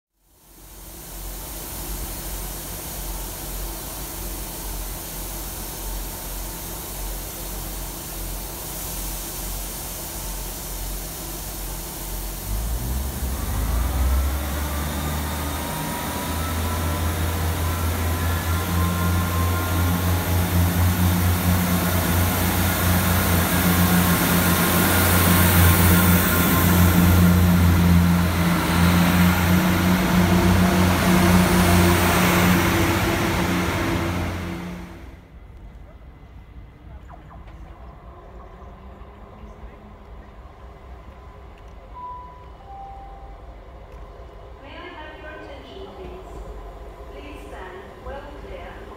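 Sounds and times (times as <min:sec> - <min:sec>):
train passing with rising whine: 0:00.2 - 0:48.9
diesel train engine: 0:00.3 - 0:48.9.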